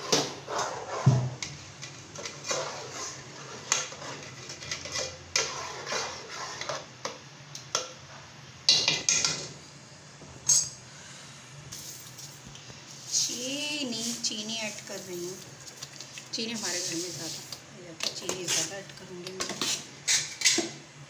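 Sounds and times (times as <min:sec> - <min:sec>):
metal spoon scraping a pot: 0:00.0 - 0:06.9, 0:16.4 - 0:20.8.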